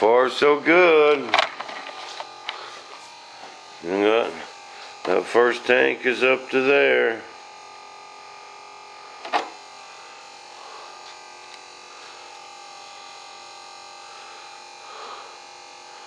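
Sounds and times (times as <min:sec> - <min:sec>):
electric fuel pump whining: 0:00.0 - 0:16.0.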